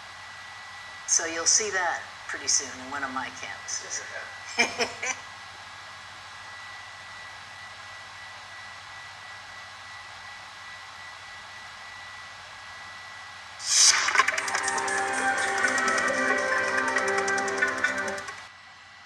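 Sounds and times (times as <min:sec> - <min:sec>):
steady hiss: 0:13.6 - 0:16.2.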